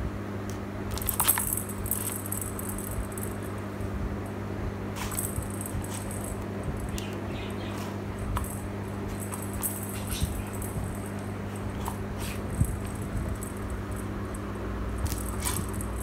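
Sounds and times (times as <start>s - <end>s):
steady low hum: 0.0s - 16.0s
plastic ball rattling and jingling: 0.9s - 3.5s, 5.0s - 7.0s, 8.2s - 16.0s.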